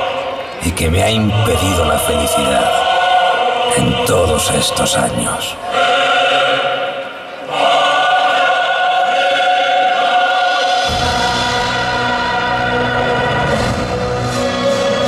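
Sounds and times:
choir holding long chords: 0:00.0 - 0:15.0.

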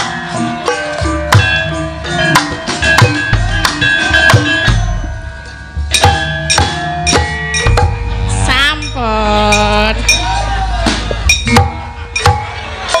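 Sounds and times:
hand drum beats: 0:00.0 - 0:13.0
metallophone keys ringing: 0:00.4 - 0:10.4.

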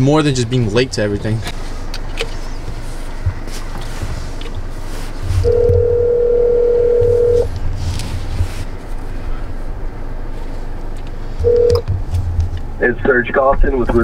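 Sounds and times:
telephone ringback tone: 0:05.5 - 0:07.5, 0:11.4 - 0:11.8.

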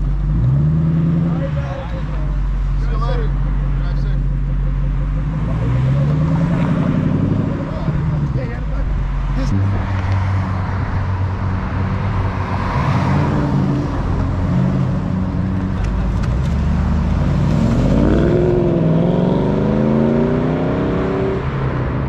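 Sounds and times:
car engine accelerating: 0:00.0 - 0:22.0.

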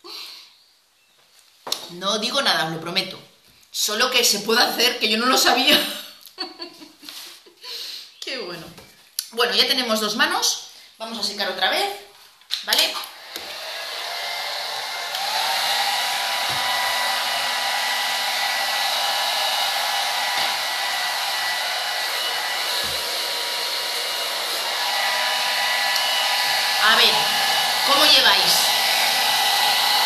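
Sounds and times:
hair dryer blowing: 0:13.0 - 0:30.0.

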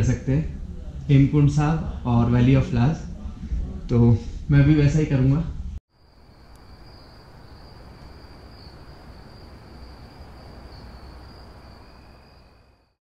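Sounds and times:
crickets trilling: 0:05.9 - 0:13.0.

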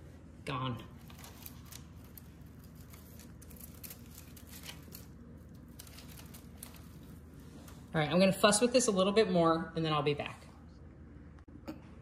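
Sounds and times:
pine sprigs rustling and crackling: 0:01.0 - 0:08.0.

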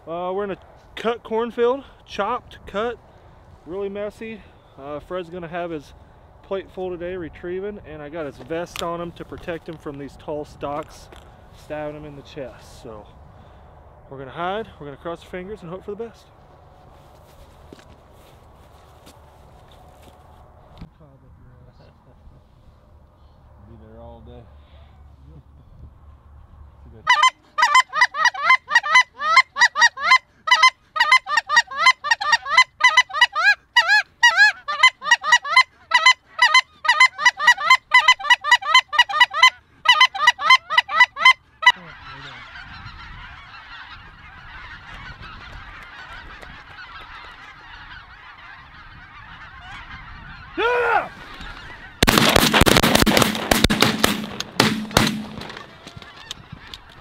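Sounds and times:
geese honking: 0:27.1 - 0:57.0.

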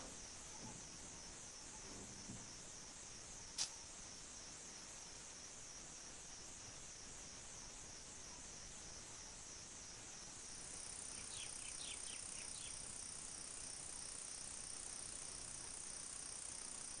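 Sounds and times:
crickets trilling: 0:00.0 - 0:17.0
steady high insect note: 0:02.8 - 0:17.0
faint chirps: 0:10.6 - 0:17.0.

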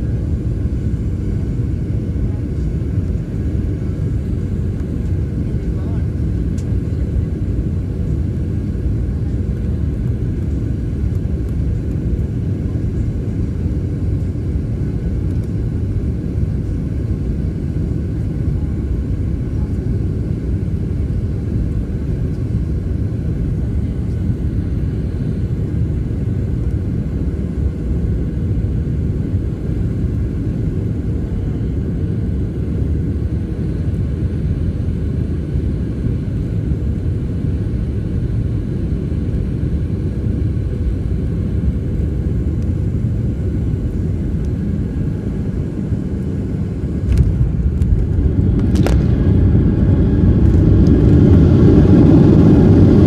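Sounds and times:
jet engines and rushing air: 0:00.0 - 0:53.0.

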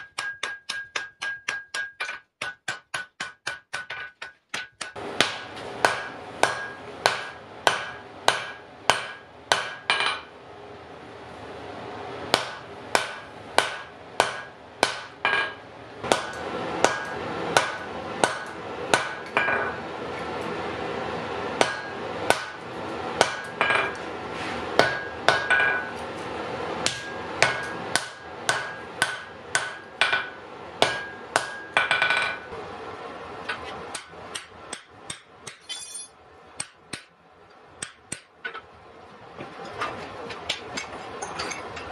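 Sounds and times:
hammer striking iron on anvil: 0:00.0 - 0:10.3, 0:12.3 - 0:19.8, 0:21.6 - 0:22.6, 0:23.2 - 0:24.0, 0:24.8 - 0:26.0, 0:26.8 - 0:32.5, 0:33.9 - 0:37.1, 0:37.8 - 0:38.6.

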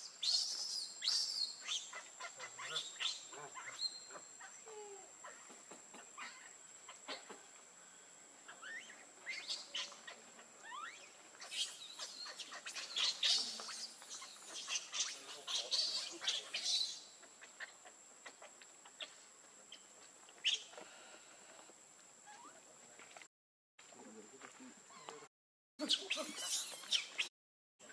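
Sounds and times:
baby monkey shrill squealing: 0:08.6 - 0:17.0, 0:25.8 - 0:27.3.

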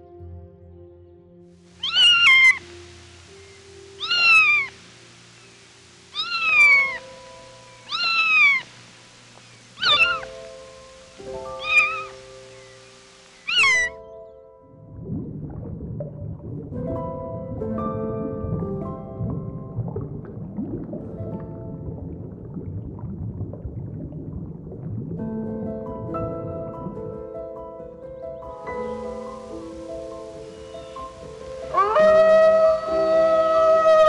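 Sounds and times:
soft background music: 0:00.0 - 0:34.0
kitten meowing: 0:01.8 - 0:02.6, 0:04.0 - 0:04.7, 0:06.2 - 0:07.0, 0:07.9 - 0:08.6, 0:09.8 - 0:10.3, 0:11.6 - 0:12.2, 0:13.4 - 0:13.9.

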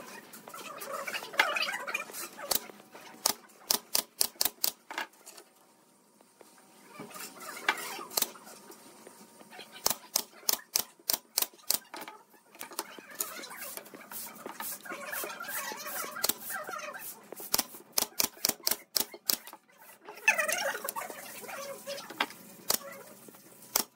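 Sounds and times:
pneumatic nail gun firing: 0:17.5 - 0:19.5.

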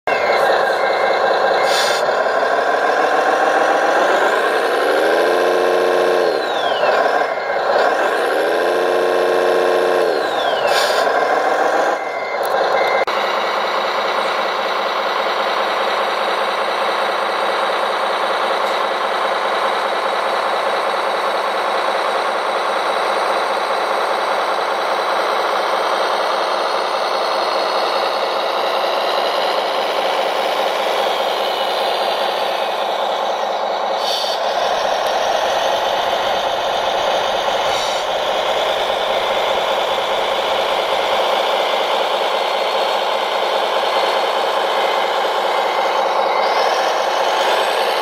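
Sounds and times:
reversing beeps: 0:00.1 - 0:02.0, 0:03.0 - 0:14.7
diesel engine revving: 0:00.1 - 0:48.0.

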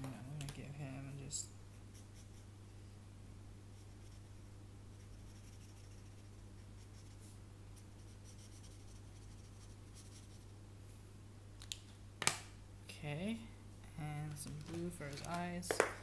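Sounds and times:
steady low hum: 0:00.0 - 0:16.0
marker scratching on paper: 0:03.8 - 0:04.4, 0:05.0 - 0:10.5.

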